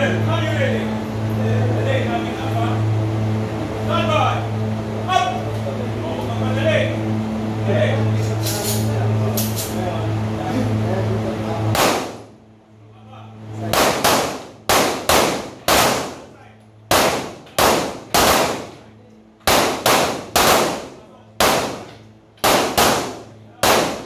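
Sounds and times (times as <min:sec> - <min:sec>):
pistol shots echoing indoors: 0:11.8 - 0:12.4, 0:13.6 - 0:24.0.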